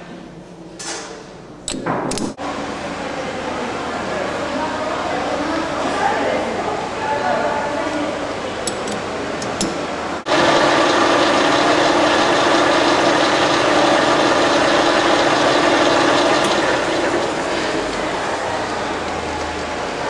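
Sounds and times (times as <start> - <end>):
metal lathe humming: 10.3 - 20.0.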